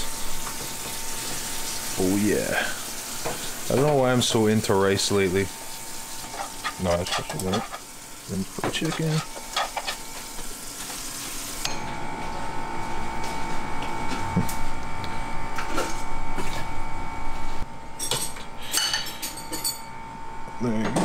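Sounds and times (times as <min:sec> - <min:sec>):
food sizzling in a frying pan: 0:00.0 - 0:11.6
steady hum with held tone: 0:00.0 - 0:21.0
dishes clinking: 0:06.2 - 0:07.9, 0:08.6 - 0:10.0, 0:18.0 - 0:19.9.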